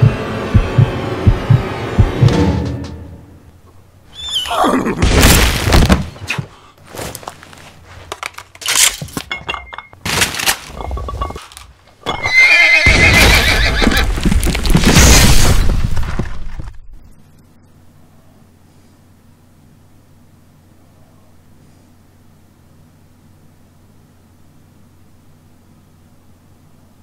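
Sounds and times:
horse whinnying: 0:04.1 - 0:05.0, 0:12.0 - 0:14.2.

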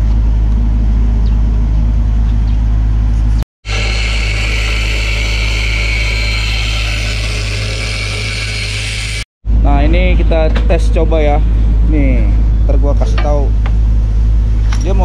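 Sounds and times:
angle grinder on steel: 0:03.6 - 0:09.3.

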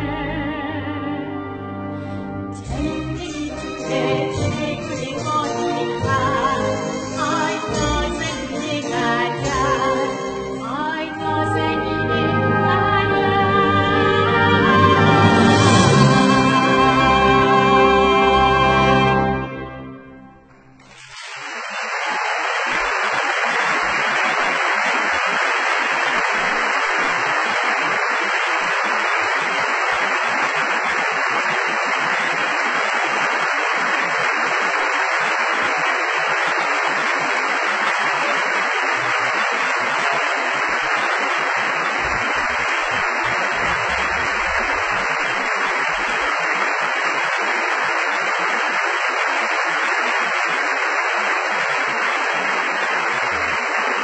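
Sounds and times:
audience applauding: 0:13.0 - 0:19.6, 0:20.8 - 0:54.0.

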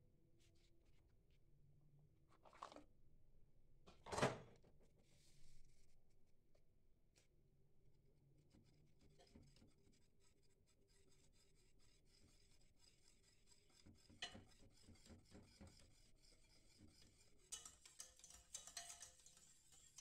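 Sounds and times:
whisk scraping saucepan: 0:08.4 - 0:20.0.

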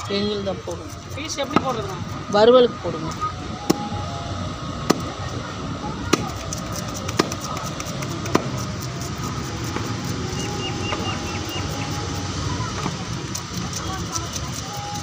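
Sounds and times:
knife chopping fish on wood: 0:06.1 - 0:10.3.

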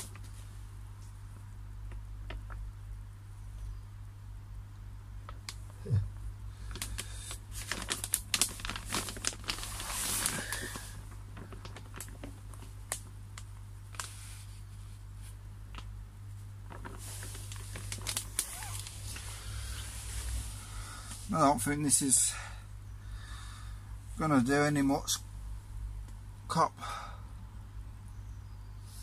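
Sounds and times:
plastic liner crinkling: 0:00.0 - 0:01.2, 0:06.6 - 0:21.4.

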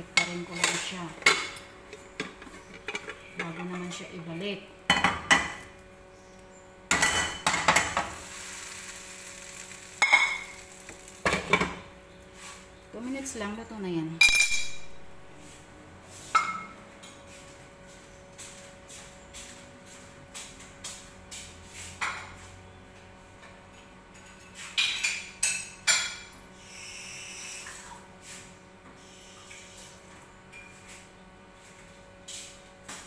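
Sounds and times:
kitchenware clinking: 0:00.2 - 0:04.0, 0:10.0 - 0:10.6, 0:14.2 - 0:14.9, 0:24.2 - 0:26.3.

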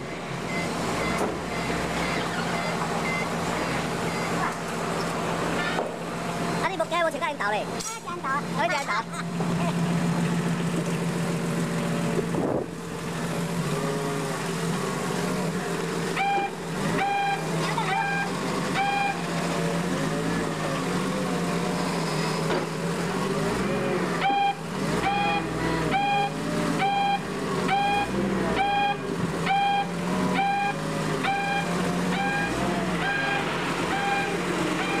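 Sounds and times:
forklift warning beeps: 0:00.0 - 0:04.7, 0:16.0 - 0:20.5, 0:23.7 - 0:35.0
forklift engine running: 0:00.0 - 0:35.0.

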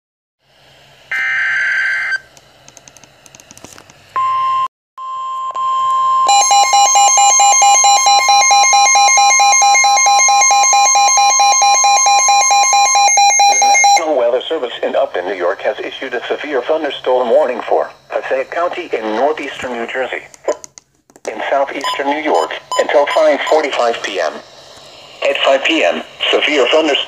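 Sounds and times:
rapidly pulsing alarm beeps: 0:04.2 - 0:14.2, 0:21.8 - 0:24.0.

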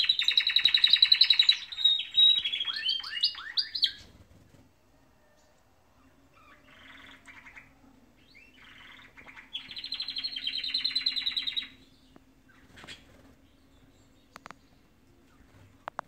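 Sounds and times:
bird call: 0:00.0 - 0:04.0, 0:06.4 - 0:11.8
canary singing: 0:00.0 - 0:04.3, 0:05.3 - 0:16.0.

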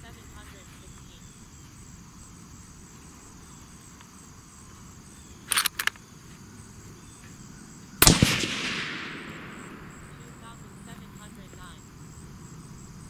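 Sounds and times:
insects buzzing: 0:00.0 - 0:13.0
short clicks: 0:05.4 - 0:06.0
rifle shot with echo: 0:08.0 - 0:10.6.

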